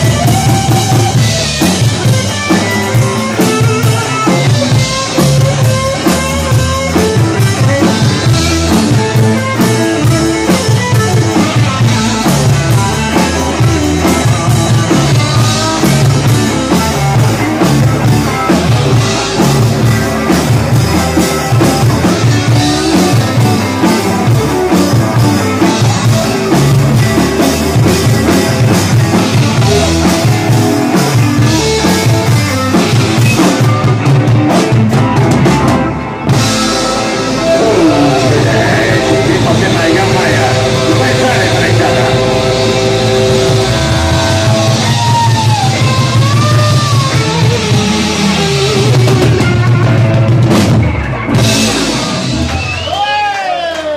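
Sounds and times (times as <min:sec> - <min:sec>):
distorted electric guitars: 0:00.0 - 0:53.9
drum kit beat: 0:00.0 - 0:53.9.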